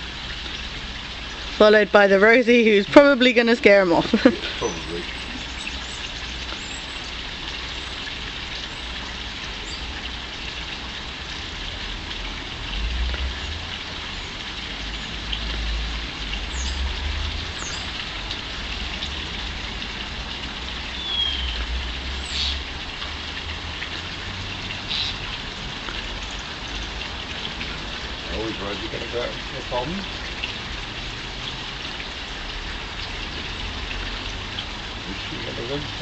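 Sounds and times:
steady outdoor hiss: 0.0 - 36.0
small birds calling: 4.4 - 9.0, 16.4 - 16.9, 17.5 - 18.0, 20.9 - 22.6, 24.8 - 25.2.

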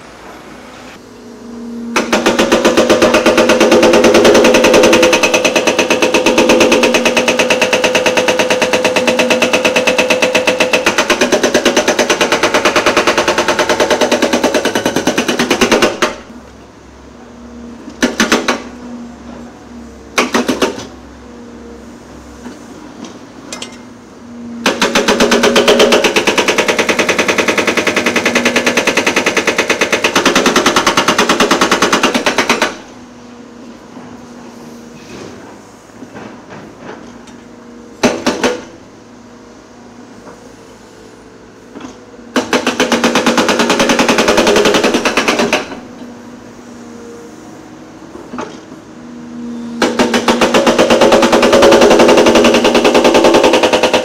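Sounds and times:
hydraulic breaker hammering: 1.9 - 16.4, 17.8 - 18.8, 20.1 - 21.0, 24.6 - 33.0, 38.0 - 38.9, 41.7 - 46.1, 49.8 - 54.0.

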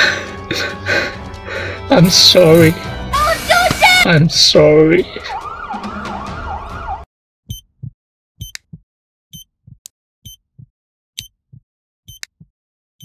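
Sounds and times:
emergency siren: 5.0 - 7.1
heartbeat thumps: 7.5 - 8.8, 9.4 - 10.7, 11.4 - 12.5
heart monitor beep: 7.5 - 12.5.

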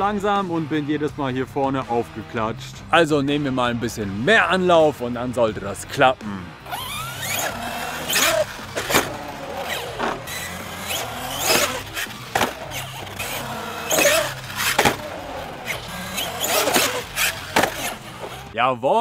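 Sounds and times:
electric motor whining: 6.6 - 18.5.

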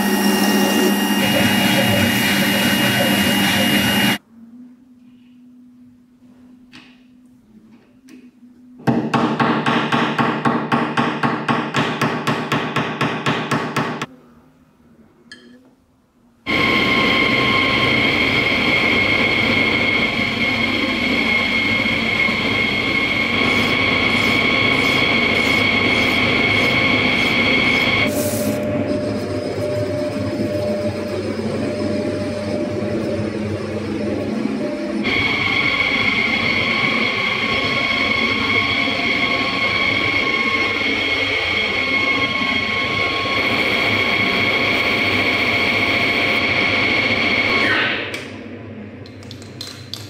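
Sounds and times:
metal lathe cutting whine: 0.0 - 4.2, 16.5 - 48.0.

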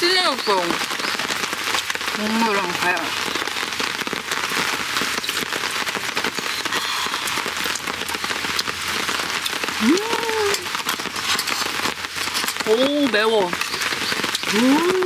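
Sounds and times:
rain pattering on a tarp: 0.0 - 15.0
person humming: 9.8 - 10.7, 14.5 - 15.0.

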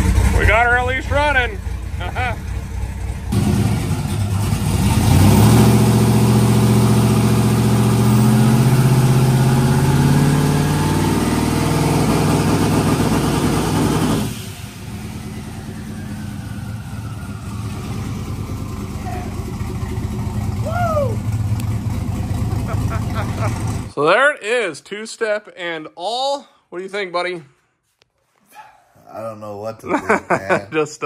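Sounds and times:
car engine revving and idling: 0.0 - 23.9.

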